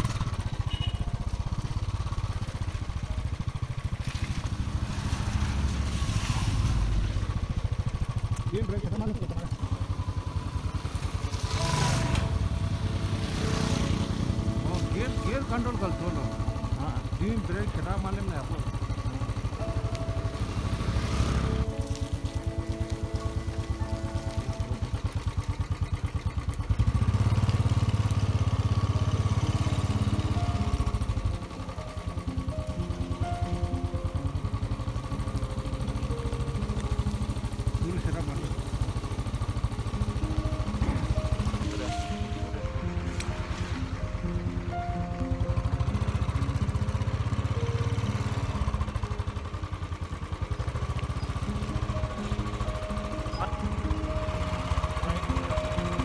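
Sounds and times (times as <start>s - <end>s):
vehicle engine running: 0.0s - 56.0s.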